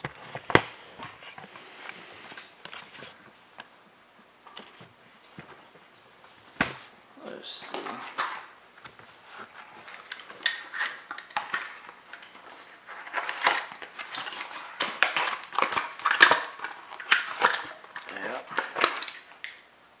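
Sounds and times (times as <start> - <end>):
cardboard flaps scraping and rustling: 12.4 - 16.0.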